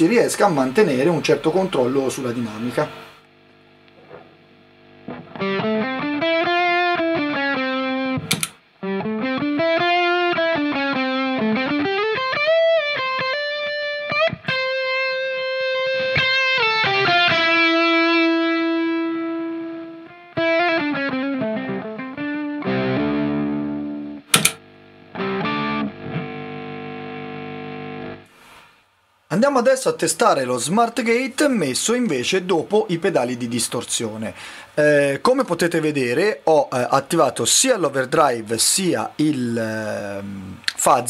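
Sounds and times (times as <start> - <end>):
faint hum: 0.0 - 6.1, 22.6 - 41.0
distorted electric guitar lead: 0.0 - 28.7
click: 8.3 - 8.6, 24.3 - 24.6.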